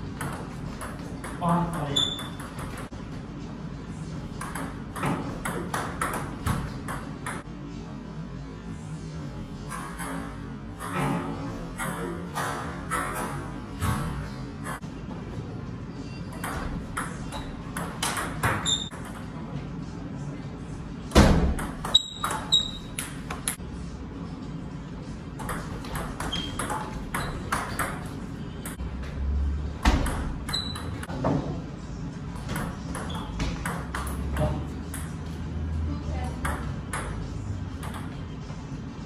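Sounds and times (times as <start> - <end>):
table tennis ball hitting paddles: 32.4 - 35.2.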